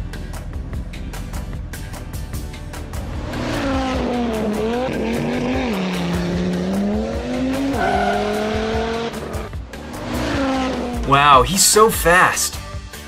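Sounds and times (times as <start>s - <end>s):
background music: 0.0s - 13.0s
race car engine revving: 3.0s - 11.1s.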